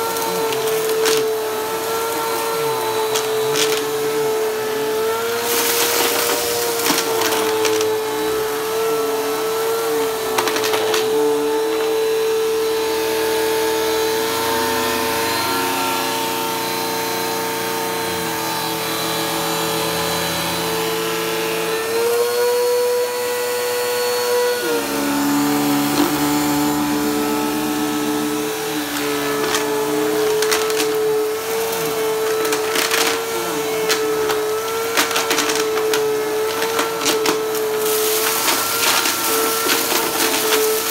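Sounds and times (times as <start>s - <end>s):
vacuum cleaner motor whine: 0.0s - 40.9s
debris rattling through vacuum: 5.0s - 8.8s, 24.8s - 40.9s.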